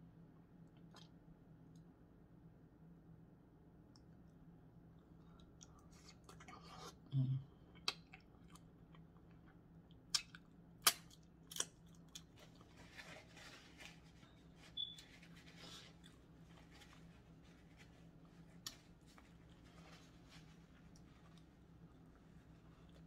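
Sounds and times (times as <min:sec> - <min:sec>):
wet mouth clicks and smacks: 0:00.7 - 0:01.9, 0:07.8 - 0:09.4, 0:10.1 - 0:12.0
person chewing food: 0:07.7 - 0:12.8, 0:20.8 - 0:23.0.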